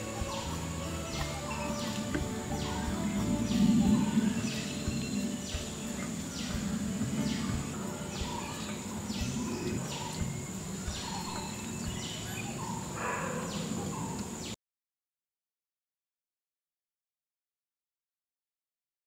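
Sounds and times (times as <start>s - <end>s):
high insect drone: 0.0s - 14.6s.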